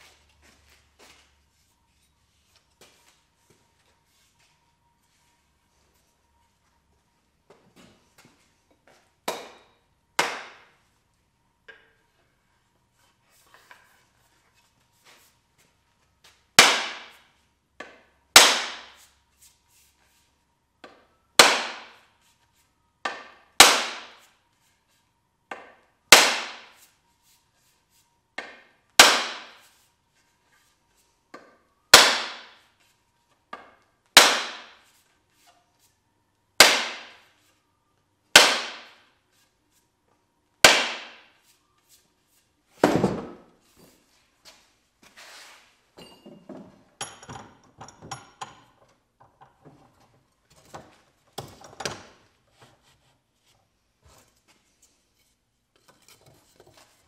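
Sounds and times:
mallet striking wooden handle: 38.4 - 38.9.

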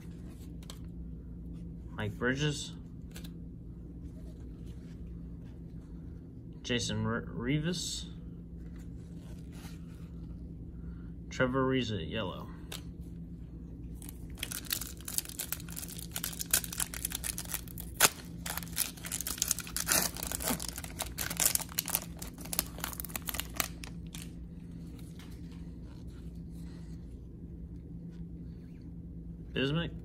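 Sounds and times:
wrapper crinkling and tearing: 14.0 - 25.2.

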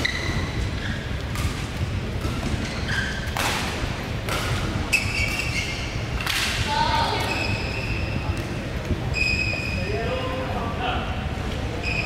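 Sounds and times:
shoes squeaking on court: 0.0 - 3.5, 4.6 - 6.3, 7.1 - 9.9, 11.8 - 12.0.

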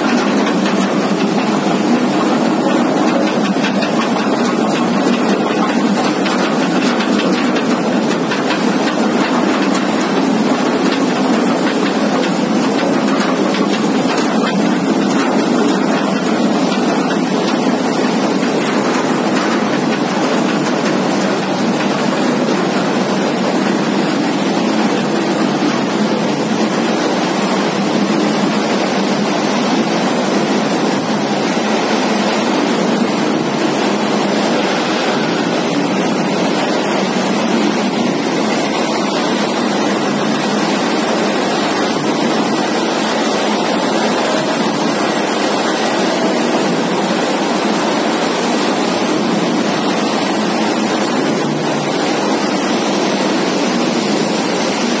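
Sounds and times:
machinery rushing noise: 0.0 - 55.0.

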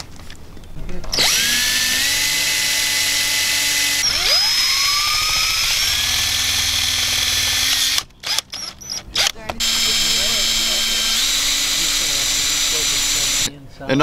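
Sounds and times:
cordless drill driving screws: 1.1 - 13.5.

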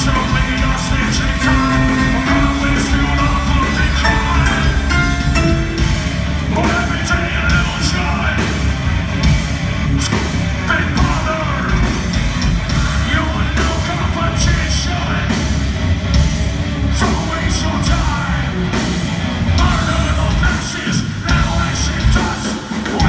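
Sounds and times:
person singing: 0.0 - 8.5
keyboard: 0.0 - 9.6
bass: 0.0 - 23.0
drums: 0.0 - 23.0
electric guitar: 0.0 - 23.0.

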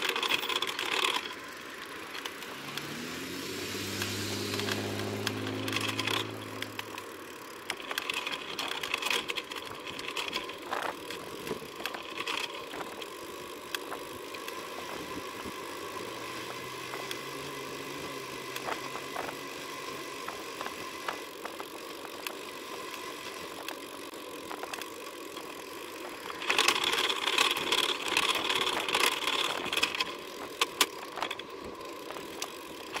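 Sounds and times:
bicycle rattles and clicks: 0.0 - 33.0.

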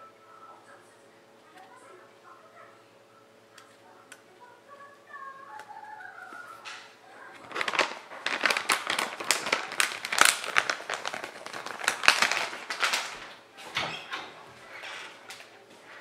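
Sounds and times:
plastic bag crinkling: 6.2 - 13.8.

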